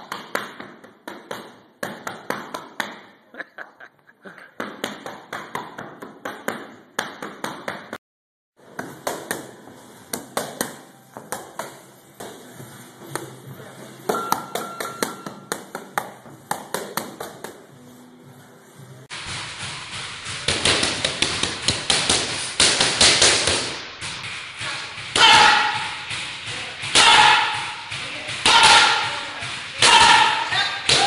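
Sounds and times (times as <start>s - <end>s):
boxing gloves hitting focus mitts: 8.6s - 12.5s, 19.2s - 31.0s.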